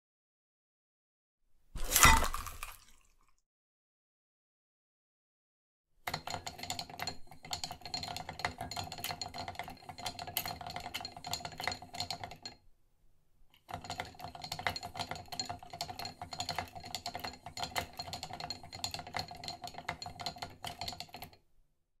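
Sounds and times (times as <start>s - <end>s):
knives rattling in wooden block: 6.1s - 12.6s, 13.7s - 21.4s.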